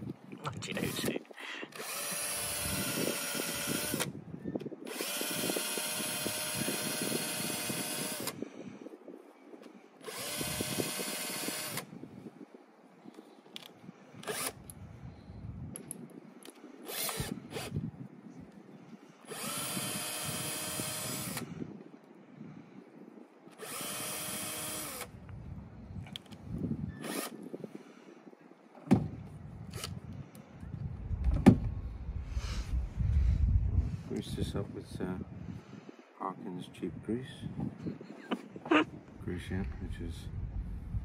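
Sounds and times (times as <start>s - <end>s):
cordless drill whining: 0.8s - 4.2s, 4.9s - 8.4s, 10.0s - 11.9s, 14.2s - 14.8s, 16.8s - 17.8s, 19.3s - 21.5s, 23.6s - 25.1s, 26.9s - 27.5s.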